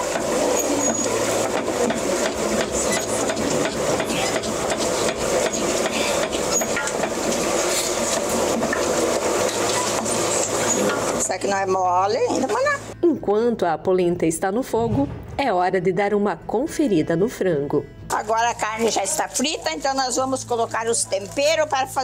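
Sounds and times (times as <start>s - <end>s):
wooden spoon scraping a pot: 0.5s - 11.3s.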